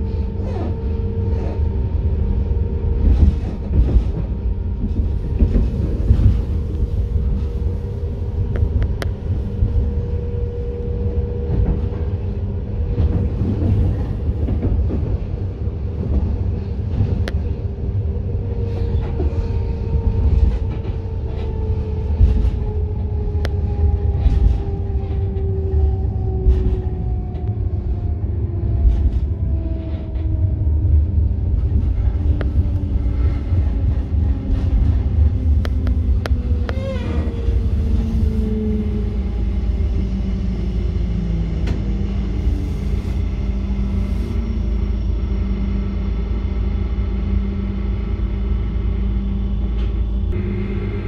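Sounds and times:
electric train rumbling: 0.0s - 51.0s
train motor whine: 31.6s - 51.0s.

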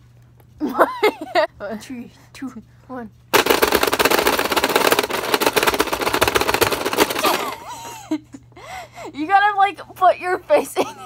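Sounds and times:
plastic buttons clicking rapidly: 3.4s - 7.6s.

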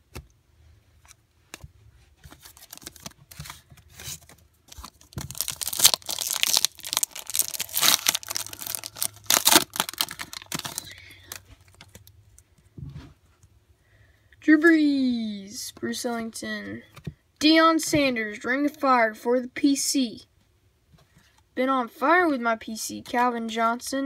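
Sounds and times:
foil wrapper tearing and crinkling: 2.4s - 3.2s, 4.0s - 12.0s.

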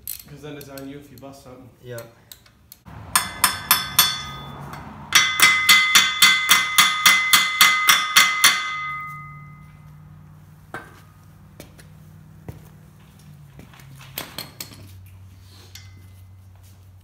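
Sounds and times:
hammer striking metal: 2.9s - 9.8s.

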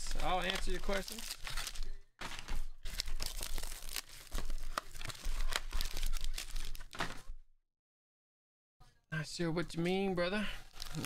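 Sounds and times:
foil wrapper crinkling: 0.0s - 7.2s, 10.5s - 11.0s.

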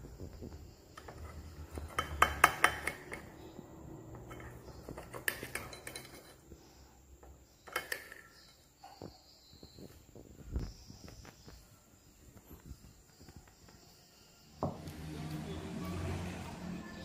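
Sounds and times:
knife scraping against plate: 4.1s - 6.5s.

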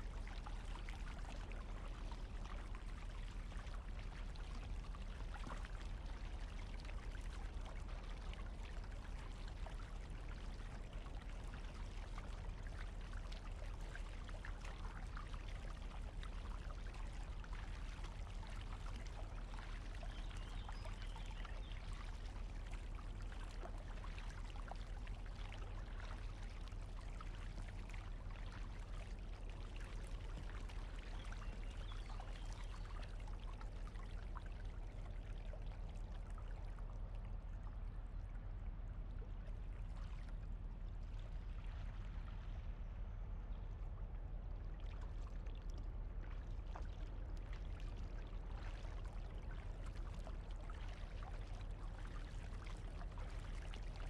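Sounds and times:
water trickling along hull: 0.0s - 54.0s
kayak paddle splashing and dripping: 9.6s - 37.2s, 44.6s - 54.0s.

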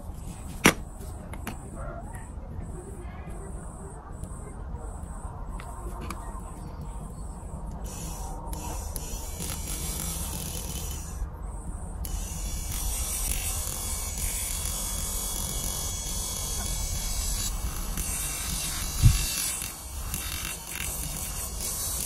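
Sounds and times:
small electric motor whirring: 7.7s - 22.0s.

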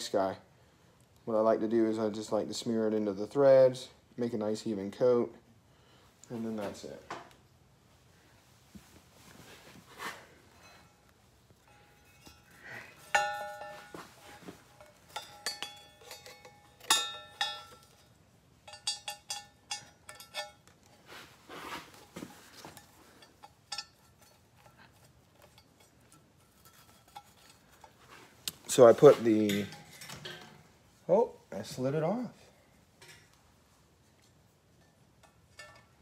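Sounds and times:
metal tools clinking: 10.5s - 21.1s, 22.0s - 30.8s, 34.8s - 36.0s.

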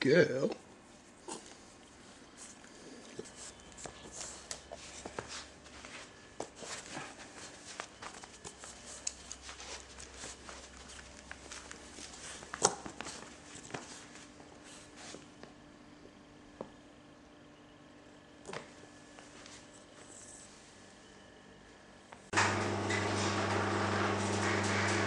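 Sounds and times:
puppy moving on carpet: 3.2s - 15.3s.

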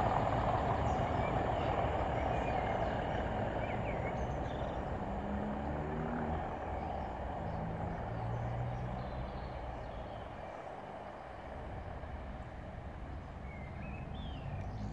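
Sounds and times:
steady rushing noise: 0.0s - 5.8s
diesel locomotive engine: 0.0s - 14.9s
bird chirping: 0.7s - 4.9s, 13.1s - 14.9s.

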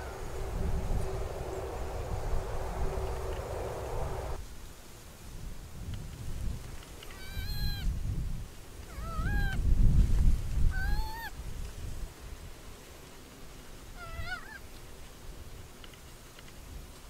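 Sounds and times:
low rumble: 0.0s - 4.4s
animal crying: 7.1s - 7.9s, 8.9s - 9.6s, 10.7s - 11.3s, 14.0s - 14.6s.

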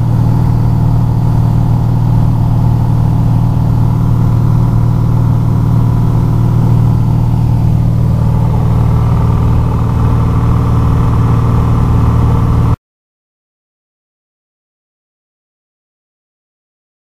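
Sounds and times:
propeller plane engine running: 0.0s - 12.8s.

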